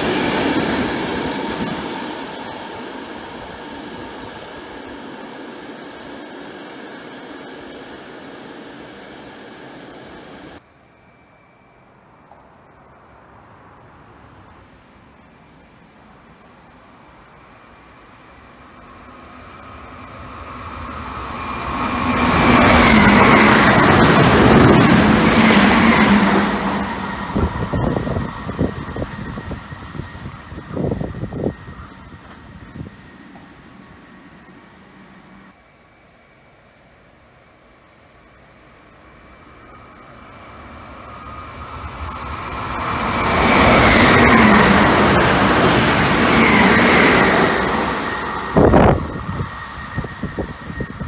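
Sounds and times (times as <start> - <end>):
electric train whine: 0.0 - 10.6, 15.7 - 51.0
wheels rumbling on rails: 18.6 - 35.5.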